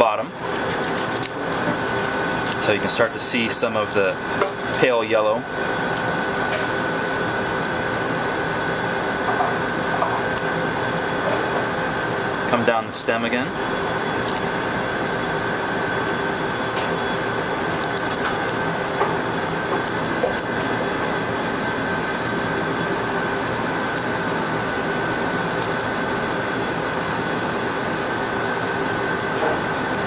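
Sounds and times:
ventilation drone: 0.0s - 30.0s
artichoke leaves snapping: 0.5s - 2.8s, 5.8s - 6.1s, 9.6s - 10.5s, 14.2s - 14.6s, 17.7s - 18.6s, 19.7s - 20.5s, 23.9s - 27.6s.

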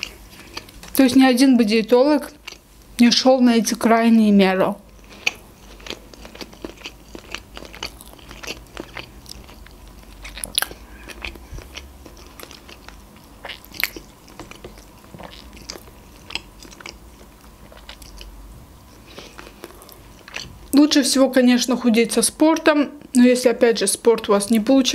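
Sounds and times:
person chewing food: 0.0s - 1.0s, 2.3s - 2.7s, 4.8s - 20.8s.

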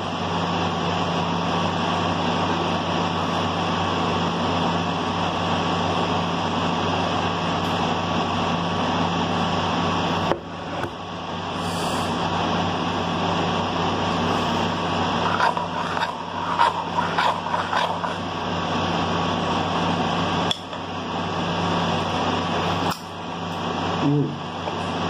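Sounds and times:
background hiss and hum: 0.0s - 25.0s.

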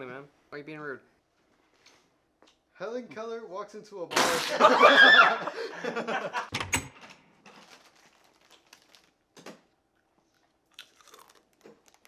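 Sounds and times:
people laughing: 4.4s - 6.5s
plastic snack bag crinkling: 7.4s - 9.6s, 10.3s - 12.0s.

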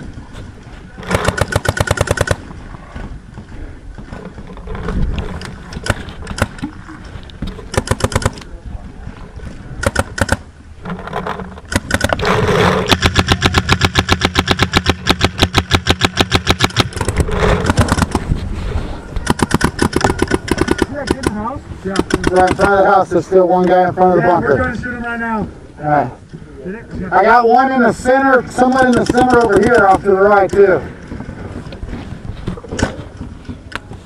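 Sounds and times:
paintball markers rapid firing: 1.0s - 2.5s, 5.8s - 6.7s, 7.7s - 8.5s, 9.8s - 10.4s, 11.7s - 18.3s, 19.2s - 22.8s, 28.6s - 30.7s.

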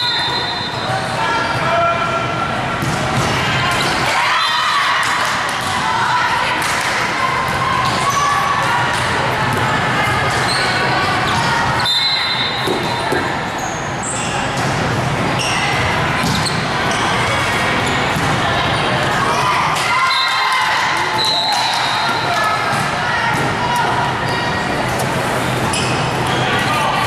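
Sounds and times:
crowd chatter in a hall: 0.0s - 27.0s
balls bouncing on court floor: 2.8s - 3.9s, 15.7s - 18.4s, 21.6s - 23.9s.

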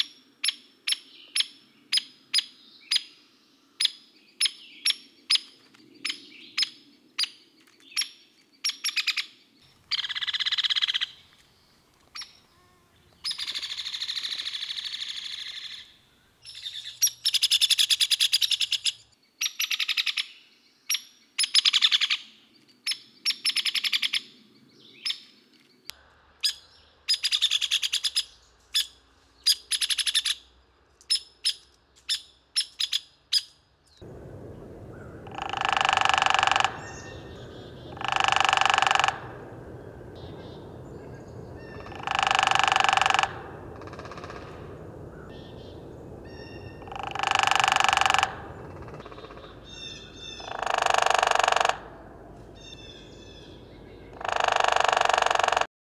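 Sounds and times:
woodpecker peek calls: 3.8s - 9.3s, 9.9s - 11.3s, 13.1s - 22.3s, 26.4s - 55.7s
woodpecker rattling whinnies: 34.9s - 53.4s, 54.1s - 55.7s.

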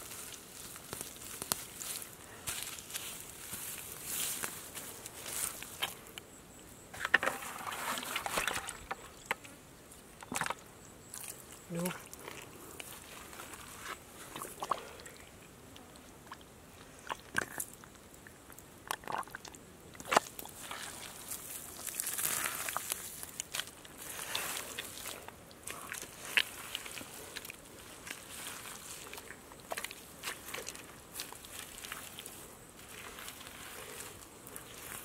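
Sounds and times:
clods cracking: 0.1s - 3.0s, 20.0s - 35.0s
hands digging in wet mud: 20.0s - 35.0s.

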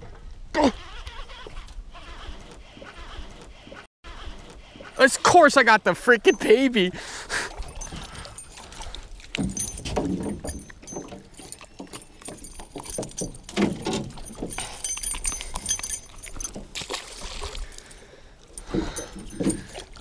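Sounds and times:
gear knocking and rustling: 7.5s - 20.0s
metal hooks jingling and clicking: 7.5s - 20.0s.

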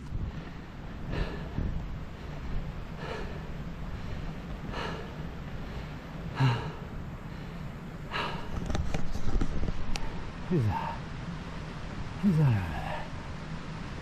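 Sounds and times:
person breathing heavily: 0.0s - 8.9s, 10.0s - 11.1s, 12.2s - 13.3s
wind rumble on microphone: 0.0s - 12.2s
sharp clicks and rustles: 8.5s - 10.1s.

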